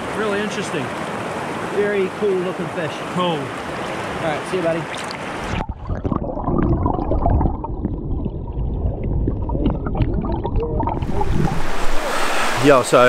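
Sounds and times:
stream hissing: 0.0 - 5.6, 11.0 - 13.0
underwater river rumble: 4.9 - 13.0.

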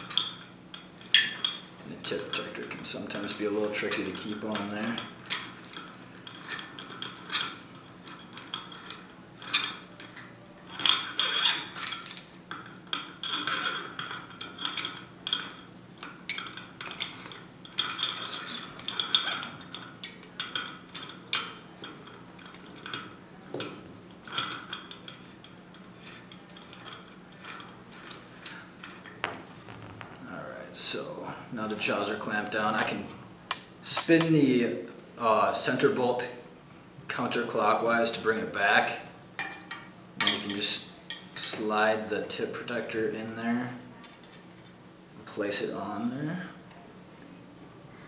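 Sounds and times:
metal clinks and scraping of puller: 0.0 - 30.2.

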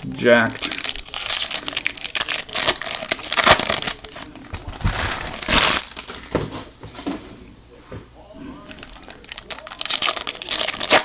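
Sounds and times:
foil wrapper crinkling: 0.0 - 6.4, 8.7 - 11.0.

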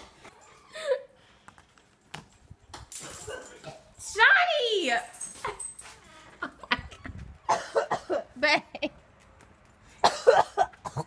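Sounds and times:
woman coughing harshly: 7.5 - 8.4, 10.0 - 11.0.

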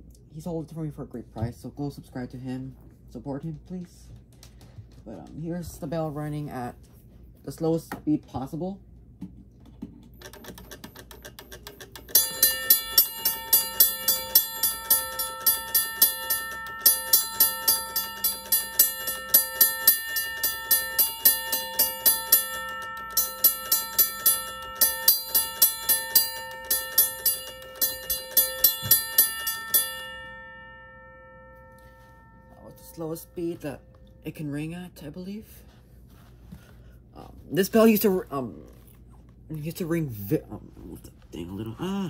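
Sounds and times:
railroad crossing bell ringing: 12.1 - 34.4.

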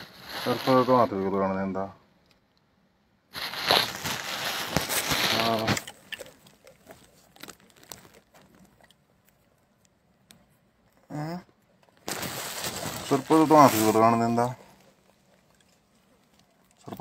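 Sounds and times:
rustling and scraping on microphone: 0.0 - 1.2, 3.3 - 8.7.

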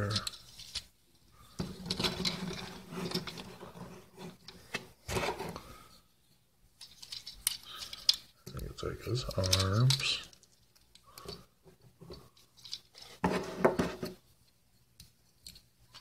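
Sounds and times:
plastic toy parts clicking and snapping: 9.2 - 11.4.

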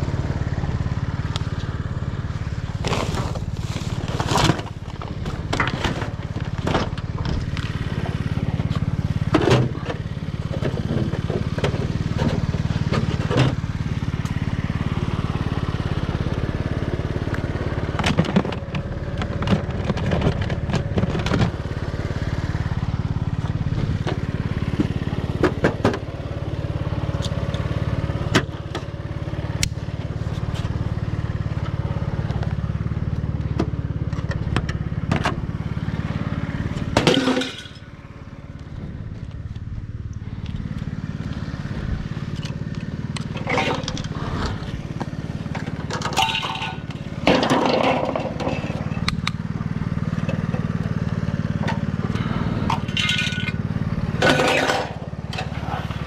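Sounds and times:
engine humming: 0.0 - 56.0
items knocking and clattering: 37.0 - 37.8, 45.6 - 49.0.

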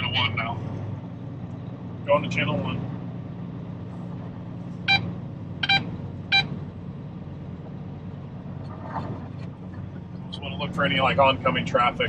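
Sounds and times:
diesel engine drone: 0.0 - 12.0.

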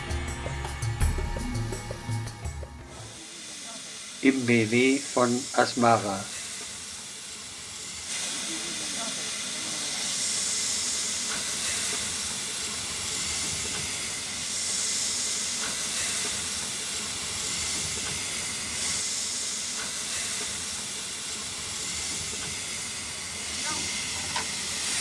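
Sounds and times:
steam locomotive hissing: 0.0 - 25.0.

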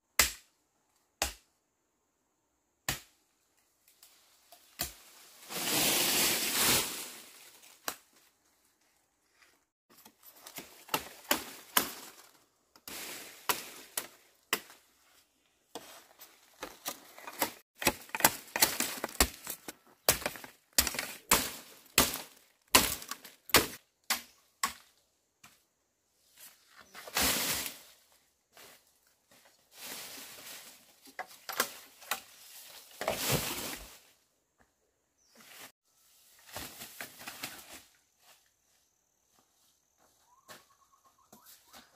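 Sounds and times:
leaves and undergrowth rustling: 3.7 - 23.8, 26.2 - 34.3, 35.2 - 41.9
sticks and bamboo cracking: 7.6 - 8.3, 9.9 - 14.9, 15.7 - 25.0, 30.2 - 33.4.

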